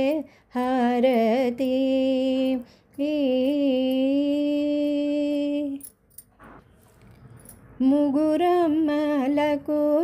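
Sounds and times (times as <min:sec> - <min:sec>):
woman singing devotional song: 0:00.0 - 0:06.0, 0:07.7 - 0:10.0.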